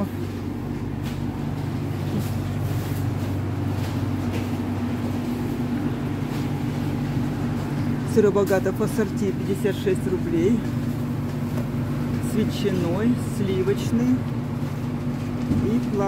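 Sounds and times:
refrigeration machinery hum: 0.0s - 16.0s.

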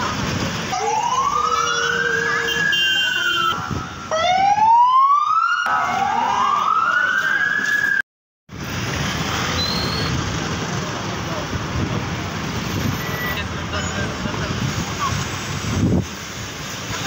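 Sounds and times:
street traffic: 0.0s - 17.0s
siren wailing: 0.7s - 8.0s.

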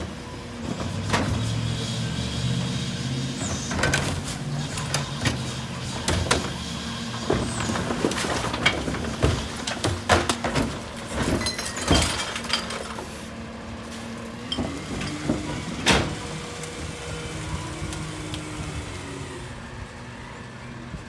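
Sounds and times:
trash carts banging on hopper: 0.0s - 19.6s
truck engine and hydraulics hum: 0.0s - 21.0s.

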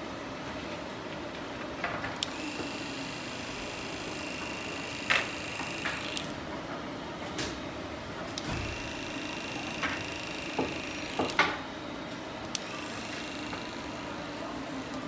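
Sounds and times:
electric clipper buzzing: 2.2s - 6.4s, 8.3s - 11.6s, 12.5s - 15.0s.

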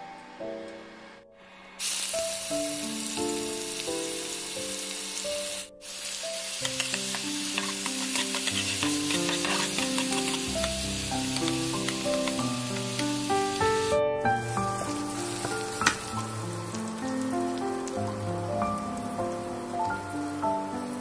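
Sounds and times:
soft background music: 0.0s - 21.0s
hot oil sizzling in a wok: 1.8s - 21.0s
metal spatula scraping a pan: 6.6s - 10.5s.

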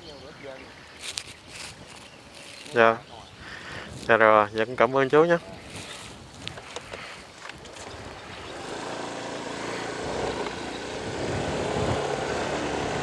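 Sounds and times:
motor scooter engine accelerating: 7.7s - 13.0s.

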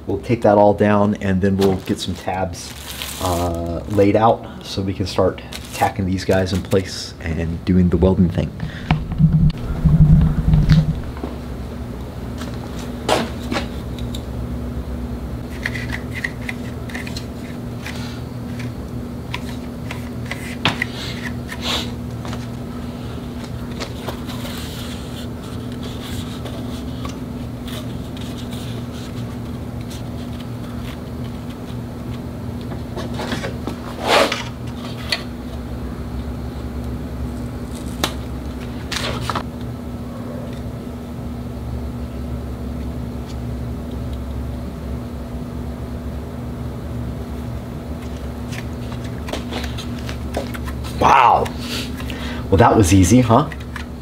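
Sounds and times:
steady low hum: 7.1s - 13.1s
knock: 8.8s - 11.3s.

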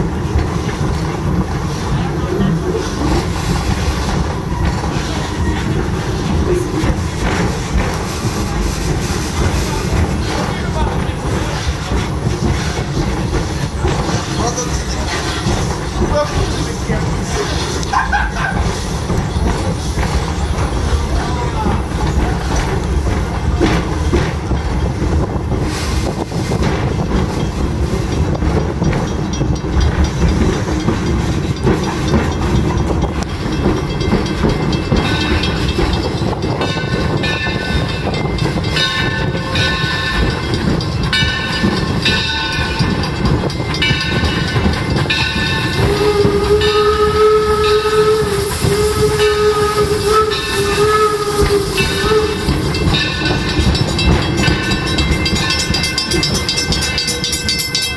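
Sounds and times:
train wheels rumbling on rails: 0.0s - 57.9s
steam whistle blasts: 45.8s - 52.8s
bell ringing: 51.7s - 57.9s.

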